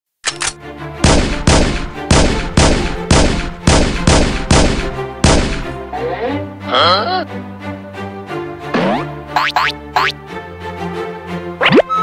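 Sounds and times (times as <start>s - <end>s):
quiet background music: 0.4s - 12.0s
gunfire bangs: 1.0s - 5.8s.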